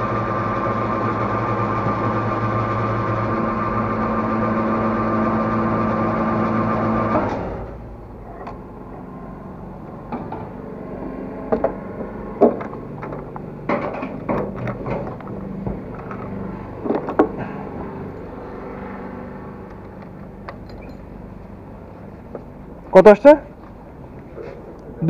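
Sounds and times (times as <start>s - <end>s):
fuel dispenser humming: 0.0s - 8.7s.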